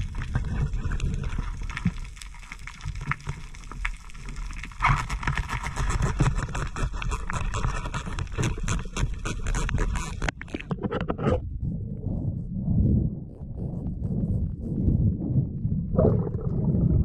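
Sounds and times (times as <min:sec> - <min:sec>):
dense crackle of underwater clicks: 0:00.0 - 0:11.2
low rumble of moving water: 0:00.0 - 0:17.0.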